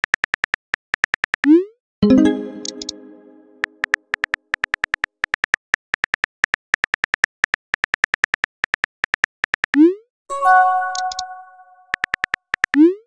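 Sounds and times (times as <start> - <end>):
brief chime: 10.3 - 11.9.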